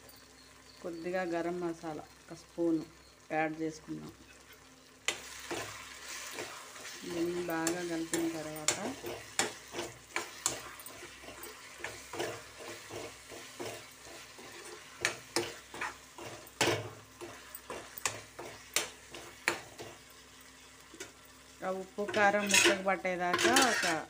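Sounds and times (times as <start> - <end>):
faint sizzle from pan: 0.0 - 24.0
spoon scraping a pan: 4.2 - 21.2, 22.0 - 24.0.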